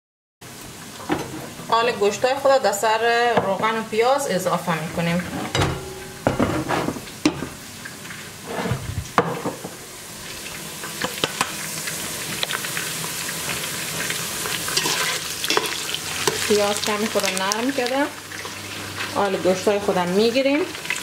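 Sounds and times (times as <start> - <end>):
onions sizzling in hot oil: 5.8 - 21.0
spoon stirring in a pot: 14.7 - 16.6.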